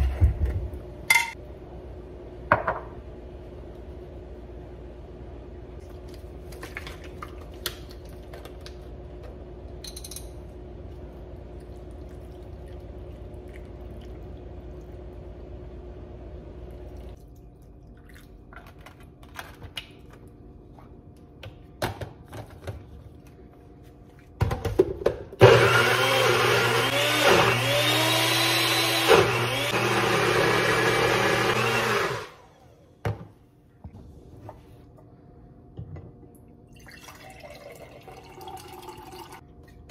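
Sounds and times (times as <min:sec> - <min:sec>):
blender motor running: 0:25.4 - 0:32.6.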